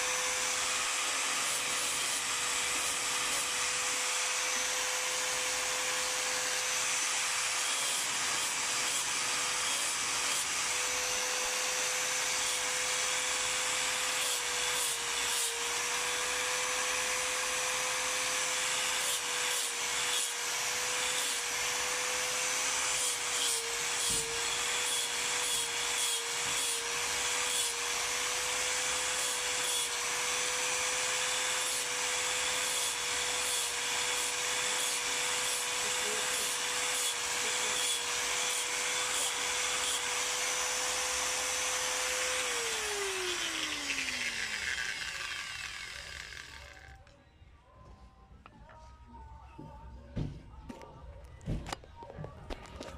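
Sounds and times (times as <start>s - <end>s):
angle grinder grinding horn: 32.5s - 47.1s.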